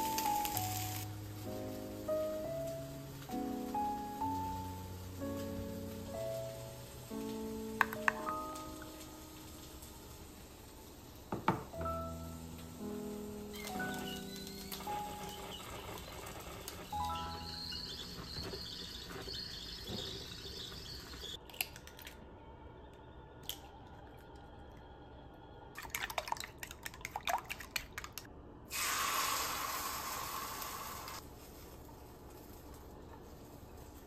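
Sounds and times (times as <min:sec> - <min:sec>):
egg sizzling in hot pan: 0:00.0 - 0:21.4, 0:28.7 - 0:34.0
rice pot hissing on gas burner: 0:00.0 - 0:21.4, 0:28.7 - 0:34.0
eggs cracked and beaten in bowl: 0:25.8 - 0:28.3.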